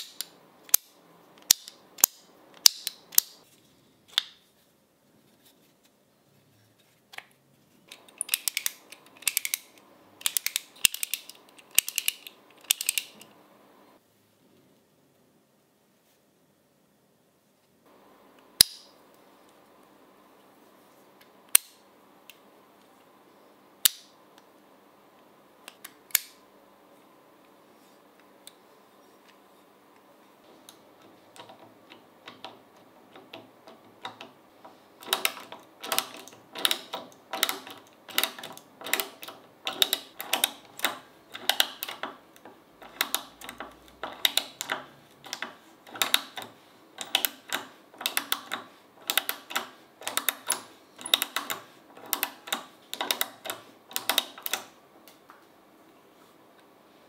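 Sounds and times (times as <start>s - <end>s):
ratchet screwdriver clicking: 8.0s - 13.2s.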